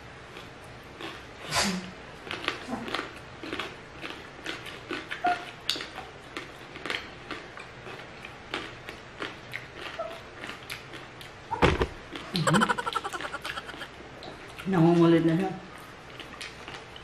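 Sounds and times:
people chewing: 0.3 - 1.5, 2.1 - 11.4, 12.1 - 14.7, 15.7 - 17.0.

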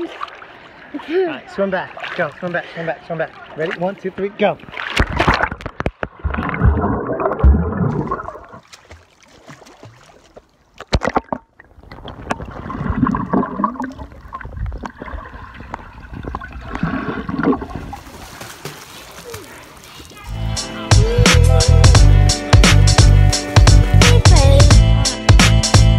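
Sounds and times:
sharp knocks underwater: 4.7 - 10.2, 10.8 - 19.4
underwater churning and bubbling: 5.0 - 8.7, 10.7 - 18.0.

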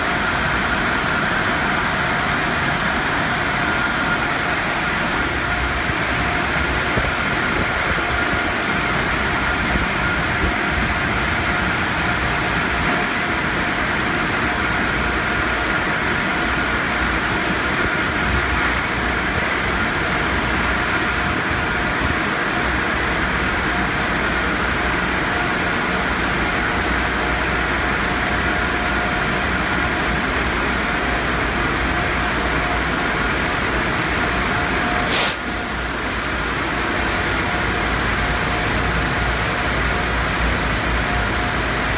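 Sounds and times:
car wash brushes and spray: 34.9 - 41.9.

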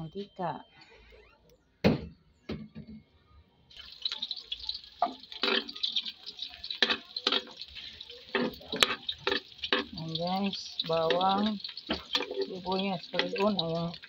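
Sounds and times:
garlic and onion sizzling in oil: 3.7 - 14.0
spatula scraping a wok: 6.7 - 10.0, 11.0 - 13.6.

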